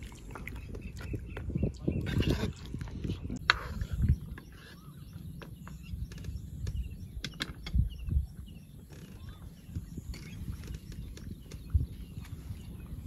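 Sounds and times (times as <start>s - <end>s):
birds chirping faintly: 0.0s - 13.0s
sharp clicks: 5.4s - 8.2s.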